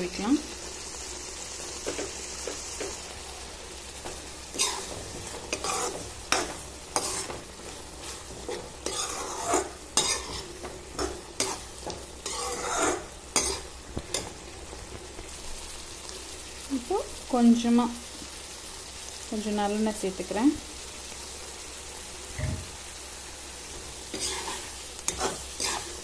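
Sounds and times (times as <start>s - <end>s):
metal ladle scraping metal pot: 8.4s - 10.4s, 12.2s - 13.6s.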